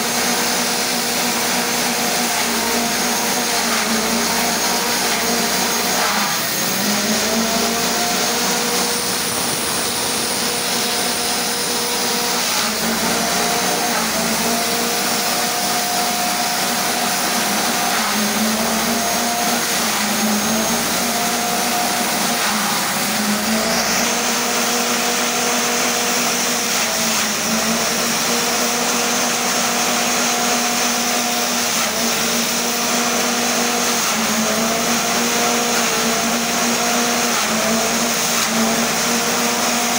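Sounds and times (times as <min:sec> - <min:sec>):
forage chopper engine running: 0:02.4 - 0:16.7.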